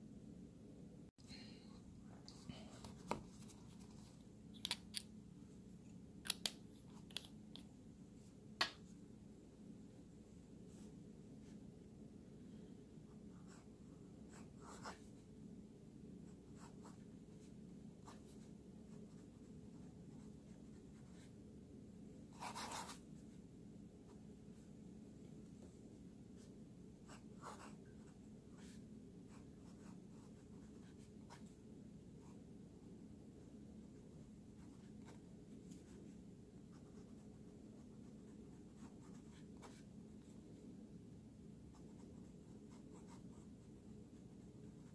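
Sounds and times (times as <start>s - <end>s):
faint low hum: 0.0s - 44.9s
fountain pen scratching on paper: 22.3s - 23.0s, 27.1s - 28.0s, 36.7s - 39.9s, 41.7s - 44.9s.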